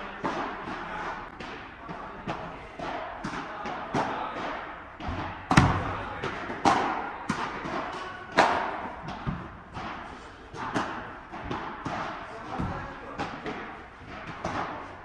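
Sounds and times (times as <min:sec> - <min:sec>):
padel ball struck by rackets: 0:02.3 - 0:10.0
ball bouncing on court: 0:05.0 - 0:10.0.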